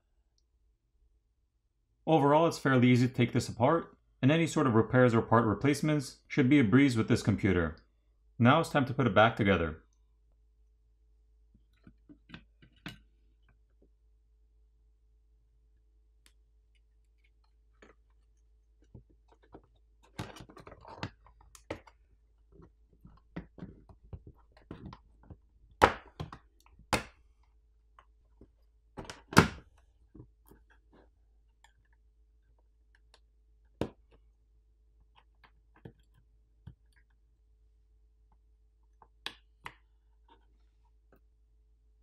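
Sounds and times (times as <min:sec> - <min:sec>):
small clicks and knocks of parts: 0:35.0 - 0:37.2.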